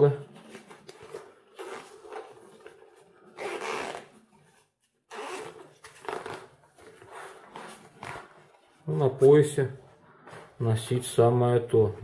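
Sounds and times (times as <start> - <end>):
zipper being pulled open: 1.1 - 4.4, 5.1 - 8.5.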